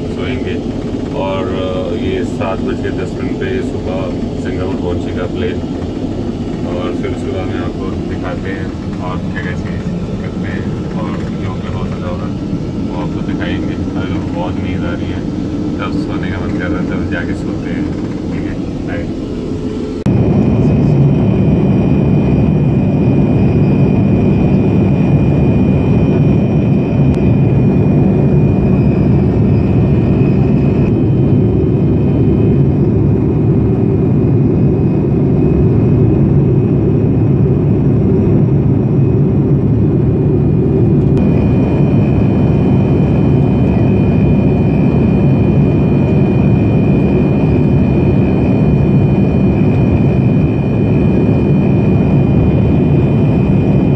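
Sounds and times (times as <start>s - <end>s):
aircraft cabin engine rumble: 0.0s - 53.9s
thin steady whine: 0.0s - 53.9s.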